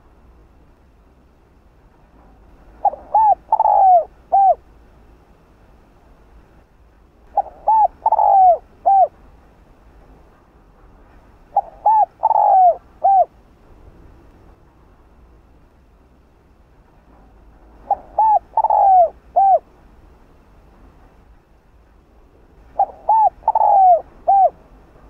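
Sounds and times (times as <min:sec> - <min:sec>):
dove cooing: 0:02.8 - 0:04.6, 0:07.3 - 0:09.2, 0:11.5 - 0:13.3, 0:17.8 - 0:19.7, 0:22.8 - 0:24.6.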